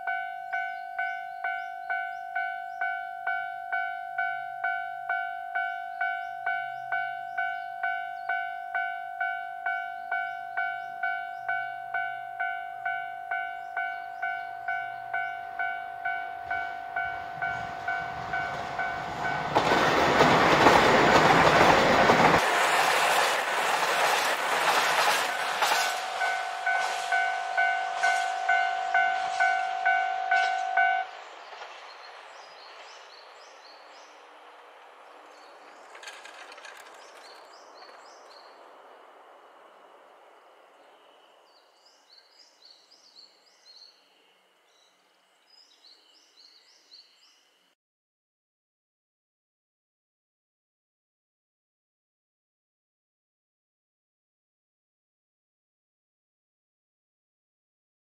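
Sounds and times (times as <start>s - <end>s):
level crossing bell dinging: 0.0s - 19.4s, 26.0s - 31.1s
diesel train passing: 0.0s - 41.4s
train wheels clattering over rail joints: 19.5s - 27.2s, 35.3s - 38.3s.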